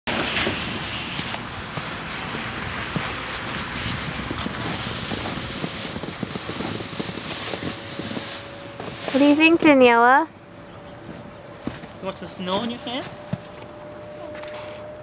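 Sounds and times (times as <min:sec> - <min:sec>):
snow crunching: 0:00.1 - 0:14.9
sled scraping over crusty snow: 0:00.1 - 0:15.0.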